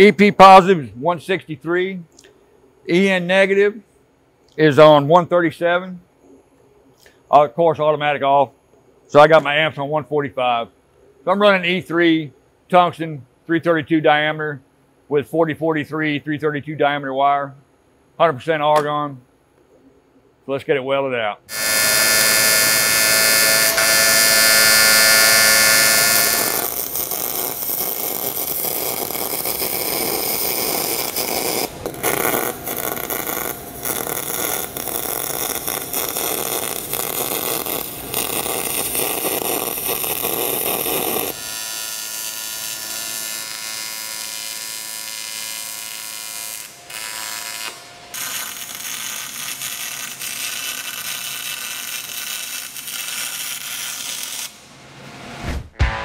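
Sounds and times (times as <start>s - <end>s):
welding arc buzzing: 21.5s - 54.6s
welding arc crackling: 21.5s - 54.6s.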